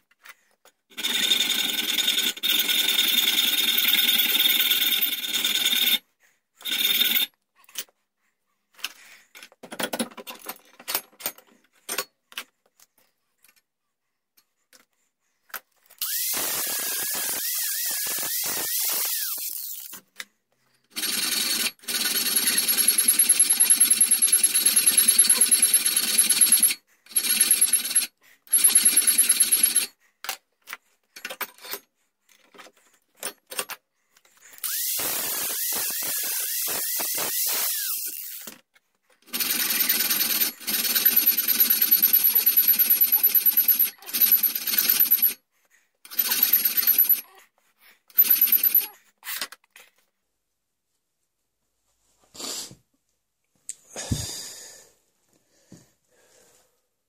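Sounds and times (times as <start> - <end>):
angle grinder grinding metal: 16.0 - 19.9, 34.7 - 38.5.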